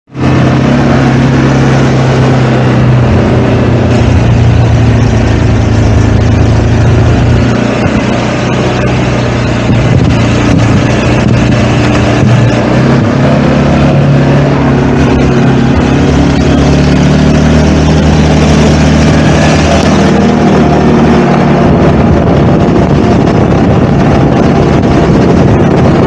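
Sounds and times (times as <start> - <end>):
atv engine running: 0.1 - 26.0
road noise: 0.1 - 26.0.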